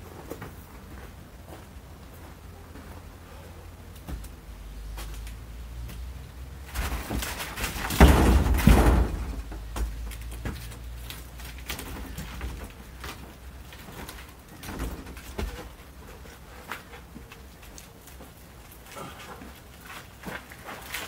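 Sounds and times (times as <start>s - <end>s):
heavy thuds in metal trailer: 6.7s - 9.6s
wood knocks and clunks: 6.7s - 16.2s.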